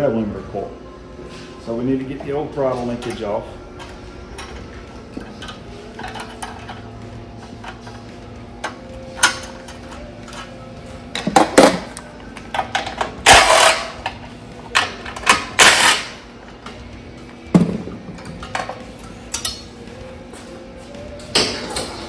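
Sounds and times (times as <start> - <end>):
hand tools clinking on metal: 18.2 - 19.7.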